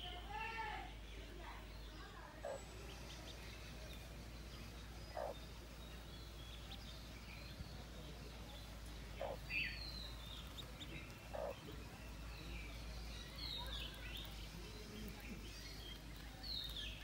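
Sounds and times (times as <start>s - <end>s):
ducklings peeping: 1.6s - 17.0s
hen clucking: 5.1s - 5.4s, 8.9s - 9.5s, 10.1s - 11.9s.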